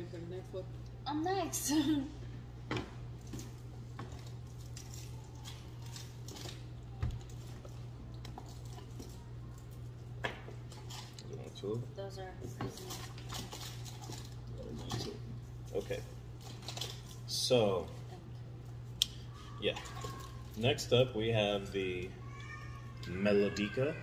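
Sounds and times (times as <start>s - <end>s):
steady low hum: 0.0s - 24.0s
snack packets rustling: 12.8s - 17.9s.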